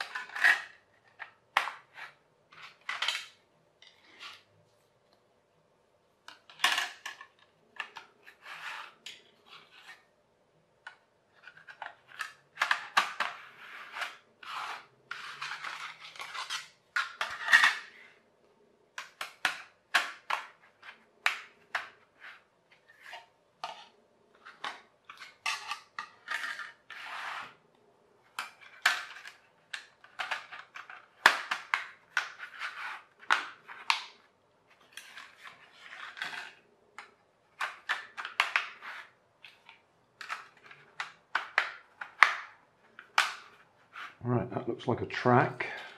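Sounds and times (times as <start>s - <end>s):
tiles scraping on wooden floor: 0.0s - 4.5s, 7.9s - 10.1s, 11.4s - 18.2s, 21.7s - 27.6s, 30.2s - 34.0s, 34.7s - 36.7s, 37.6s - 39.2s, 40.2s - 44.2s.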